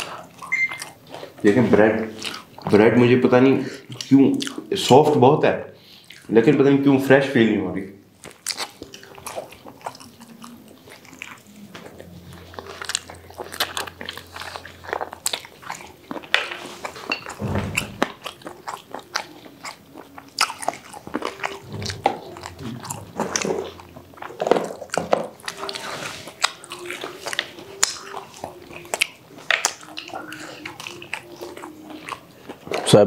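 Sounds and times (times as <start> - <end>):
crunchy bites and chewing: 8.2 - 32.9.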